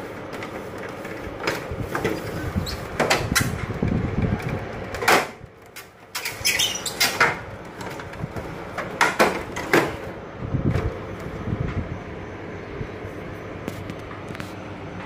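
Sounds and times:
sharp knocks and clatters: 0:07.0 - 0:10.1.

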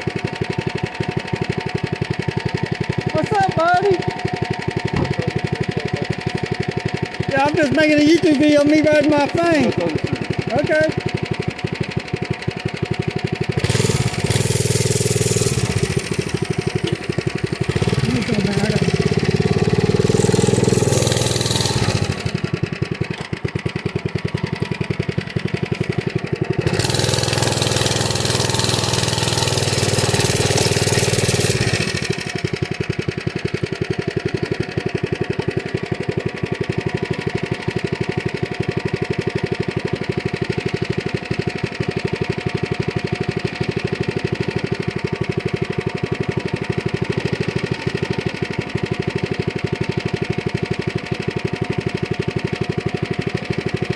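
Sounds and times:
small motorbike engine running: 0:00.0 - 0:53.9.

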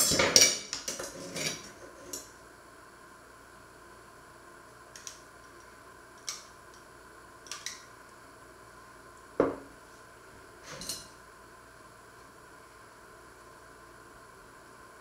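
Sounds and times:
glass jar set down on wood: 0:09.4 - 0:09.6.

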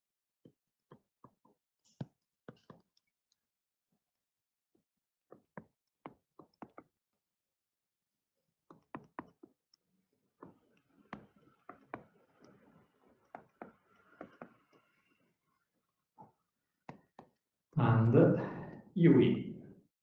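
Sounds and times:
stylus tapping tablet screen: 0:05.3 - 0:06.9, 0:08.7 - 0:09.7, 0:10.3 - 0:15.4, 0:16.2 - 0:17.4.

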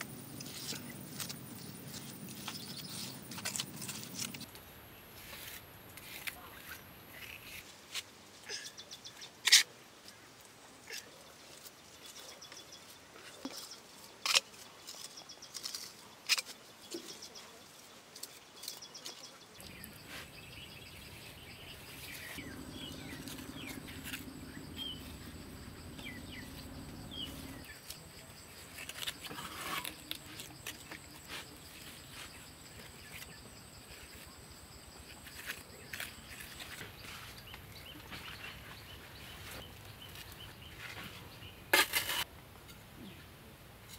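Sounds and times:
birds chirping: 0:00.0 - 0:04.4, 0:18.6 - 0:33.5
low steady hum: 0:19.6 - 0:27.8
trowel scraping wet mud: 0:19.6 - 0:27.8, 0:28.7 - 0:32.4, 0:41.8 - 0:42.3.

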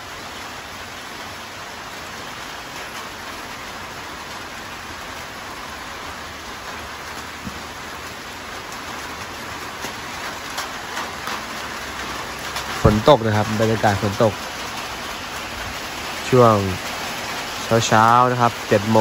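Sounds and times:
light rain falling: 0:00.0 - 0:19.0
raindrops ticking: 0:00.0 - 0:19.0.

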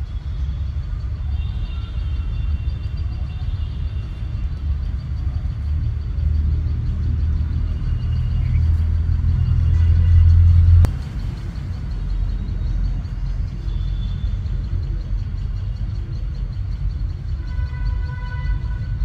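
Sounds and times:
weaker low rumble: 0:02.4 - 0:17.3
loud low rumble: 0:04.4 - 0:13.0.

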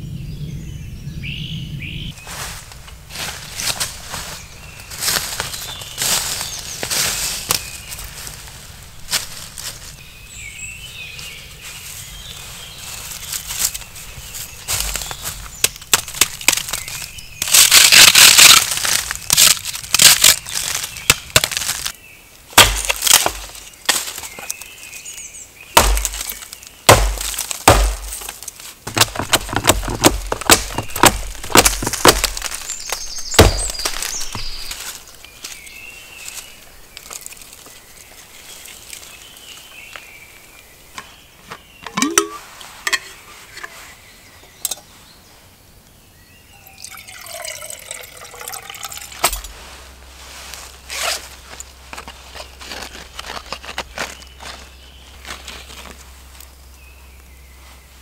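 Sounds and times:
dry wood snapping: 0:05.0 - 0:08.3, 0:14.7 - 0:22.0, 0:22.6 - 0:24.7, 0:25.7 - 0:39.1
heavy thuds: 0:25.8 - 0:28.3, 0:28.9 - 0:34.8.

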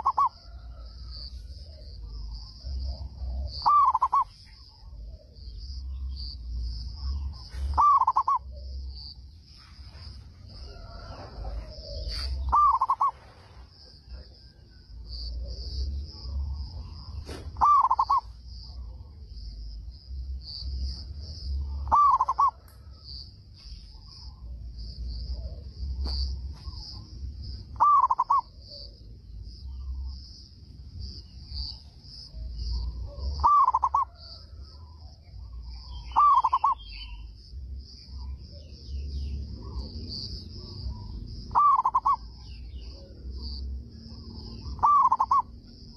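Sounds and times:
dove cooing: 0:00.0 - 0:05.4, 0:07.0 - 0:09.0, 0:10.5 - 0:14.6, 0:15.3 - 0:19.0, 0:21.6 - 0:22.9, 0:27.8 - 0:29.0, 0:32.3 - 0:34.5, 0:35.4 - 0:37.2, 0:40.6 - 0:43.2, 0:44.1 - 0:45.5
insects chirring: 0:00.0 - 0:45.9.

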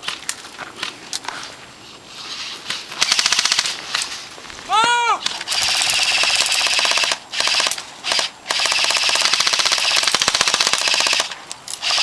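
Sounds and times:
airsoft guns firing full-auto: 0:03.0 - 0:03.8, 0:05.5 - 0:12.0.

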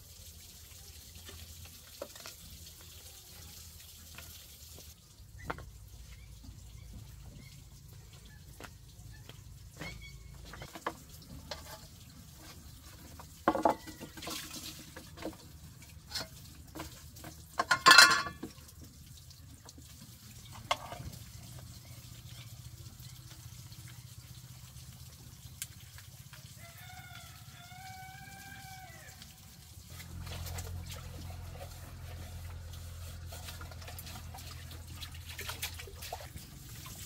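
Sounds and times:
water splashing in a basin: 0:00.0 - 0:37.0
pots clattering: 0:10.4 - 0:18.7
rooster crowing: 0:26.6 - 0:29.2.

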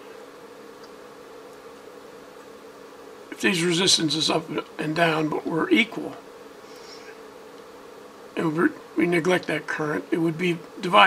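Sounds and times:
faint hum with buzzing tones: 0:00.0 - 0:11.0.

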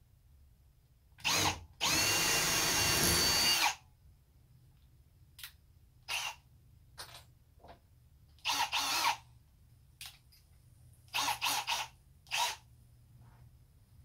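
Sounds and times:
cordless drill bursts: 0:01.2 - 0:03.8, 0:06.1 - 0:06.4, 0:08.4 - 0:09.2, 0:11.1 - 0:12.6.

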